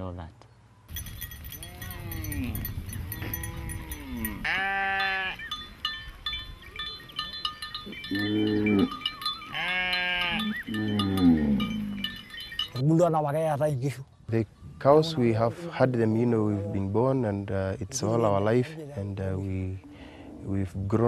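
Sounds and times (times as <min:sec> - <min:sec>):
cow bells clinking: 0:00.9 - 0:13.5
cattle mooing: 0:01.6 - 0:05.4, 0:08.0 - 0:12.3.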